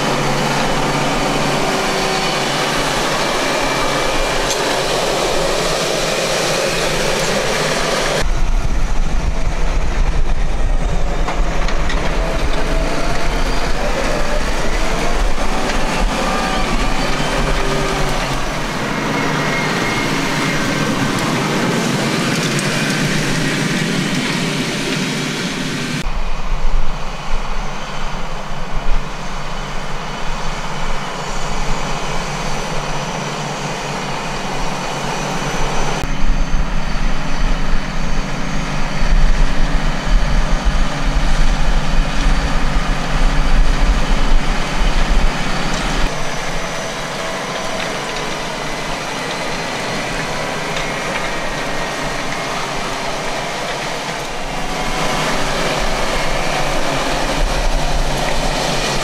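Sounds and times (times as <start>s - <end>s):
seed drill tines working soil: 0.0s - 8.3s, 11.0s - 26.0s, 37.8s - 59.0s
tractor diesel engine under load: 0.0s - 59.0s.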